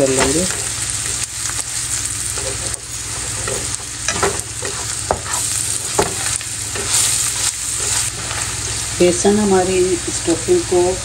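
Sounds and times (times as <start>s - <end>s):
food frying in oil: 0.0s - 11.0s
spatula scraping a pan: 2.0s - 8.8s.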